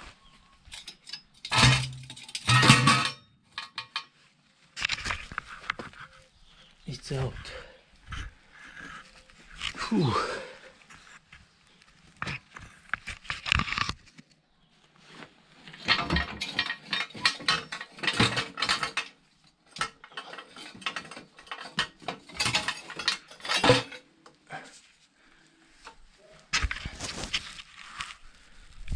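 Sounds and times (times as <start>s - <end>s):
metal tools clinking: 0.6s - 4.1s, 15.7s - 24.1s.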